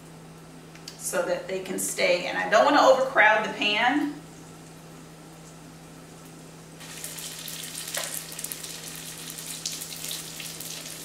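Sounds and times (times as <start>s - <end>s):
oil sizzling in skillet: 6.8s - 11.0s.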